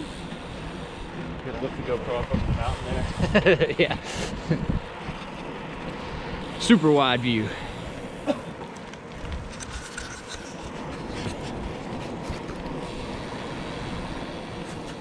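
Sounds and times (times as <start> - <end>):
bike clicks and rattles: 0.0 - 6.4, 7.4 - 13.4, 14.4 - 15.0
bike rolling on pavement: 0.0 - 15.0
wind on microphone: 2.2 - 5.2.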